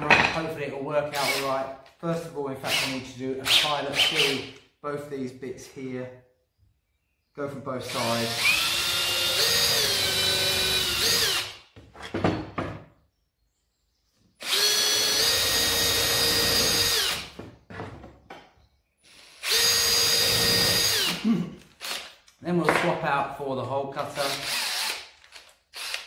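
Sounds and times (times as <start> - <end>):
cordless drill whining: 1.2 - 1.6, 7.8 - 12.1, 14.4 - 17.4, 19.0 - 22.2, 24.2 - 26.0.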